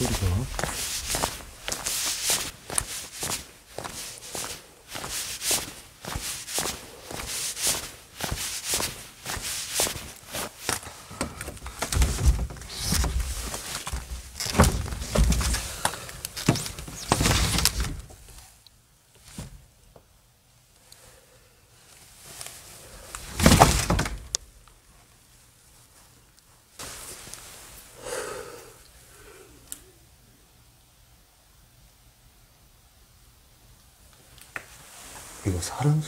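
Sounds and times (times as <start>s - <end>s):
footsteps on hard floor: 0.0s - 10.8s, 11.5s - 15.8s.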